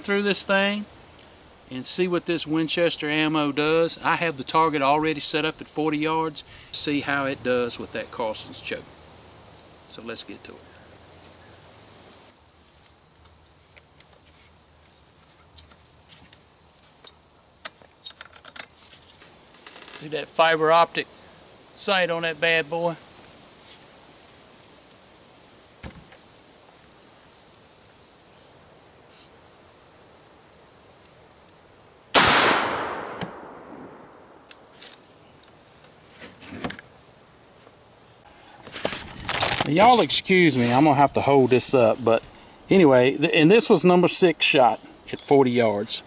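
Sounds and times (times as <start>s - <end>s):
shotgun handling clicks and rattles: 17.0s - 20.0s
shotgun shot echo: 32.2s - 34.5s.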